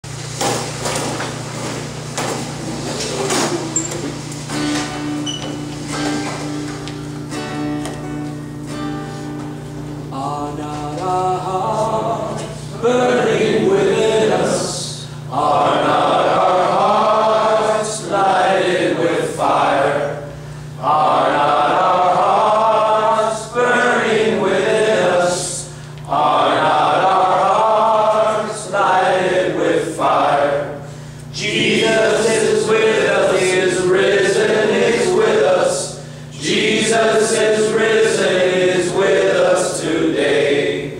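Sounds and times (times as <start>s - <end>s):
men singing worship song: 10.1s - 40.9s.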